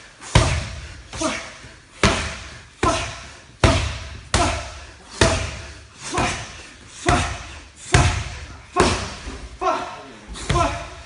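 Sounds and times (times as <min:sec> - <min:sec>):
boxing gloves slapping focus mitts: 0:00.3 - 0:09.3.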